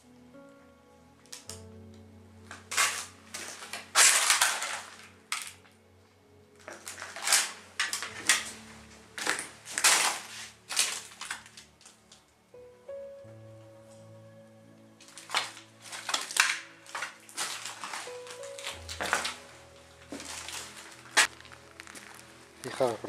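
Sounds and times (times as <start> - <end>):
faint background music: 0.0 - 23.0
footsteps crunching over rubble: 6.6 - 12.0, 15.0 - 23.0.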